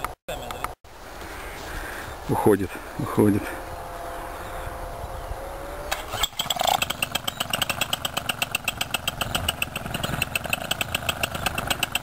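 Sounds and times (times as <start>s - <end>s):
paramotor engine idling: 6.7s - 12.0s.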